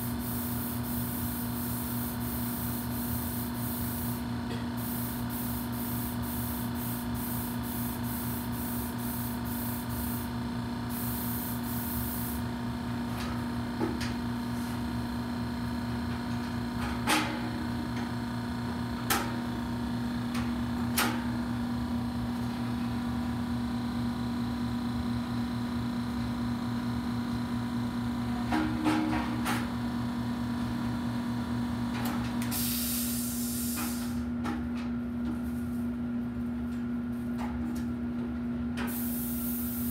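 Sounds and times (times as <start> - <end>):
paint spray gun hissing: 4.8 - 10.3, 10.9 - 12.4, 38.9 - 39.9.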